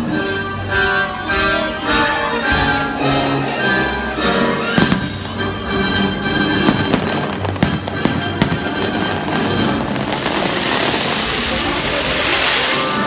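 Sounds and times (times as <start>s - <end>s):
loud orchestral music: 0.0s - 13.0s
fireworks bursting: 2.6s - 13.0s.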